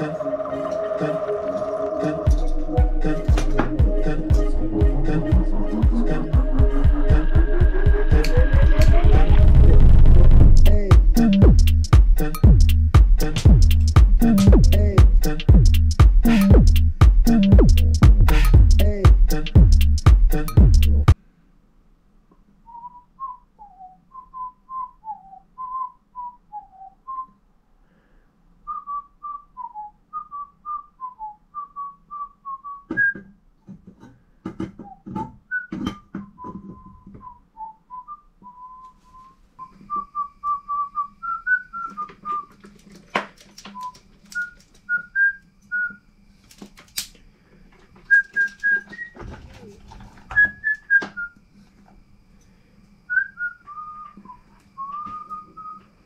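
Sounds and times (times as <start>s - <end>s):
person whistling a tune: 0.0s - 9.4s, 22.7s - 27.4s, 28.7s - 33.3s, 34.8s - 42.6s, 43.7s - 46.0s, 48.1s - 49.2s, 50.4s - 51.4s, 53.1s - 55.8s.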